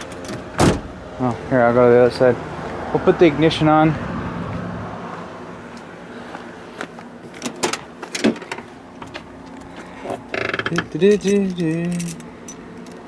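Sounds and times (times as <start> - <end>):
car door clicks and knocks: 0.0 - 0.9.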